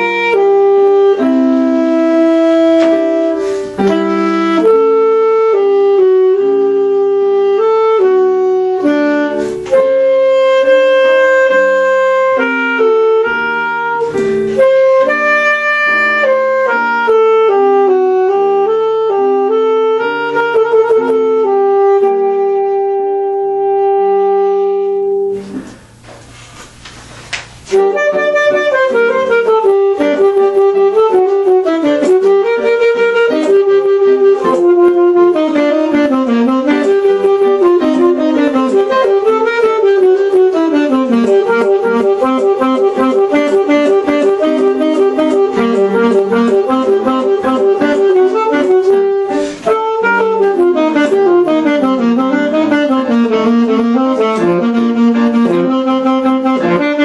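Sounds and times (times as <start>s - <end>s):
alto saxophone playing: 0.0s - 26.7s, 27.6s - 57.0s
accompaniment: 27.6s - 57.0s.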